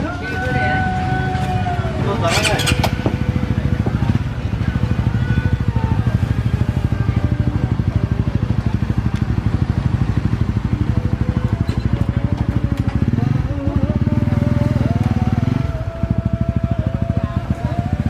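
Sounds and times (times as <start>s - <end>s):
motorcycle engine idling: 0.0s - 18.0s.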